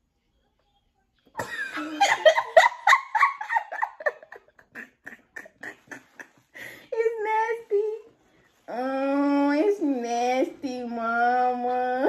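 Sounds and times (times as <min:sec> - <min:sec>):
people laughing: 0:01.4 - 0:06.5.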